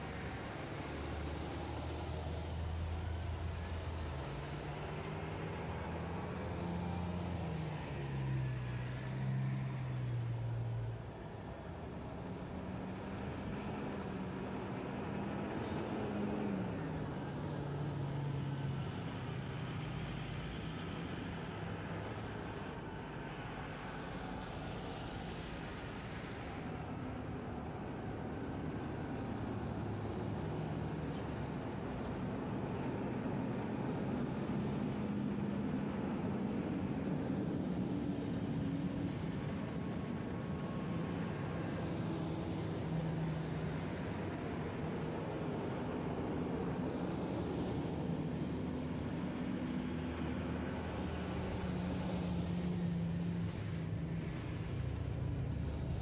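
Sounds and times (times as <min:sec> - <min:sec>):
fire truck diesel engines: 0:00.0 - 0:56.0.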